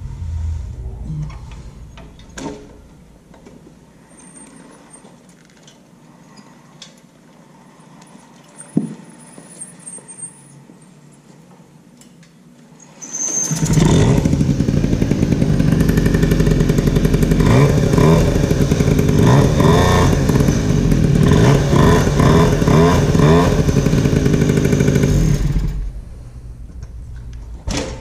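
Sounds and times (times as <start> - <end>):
moped engine revving: 13.6 - 25.8.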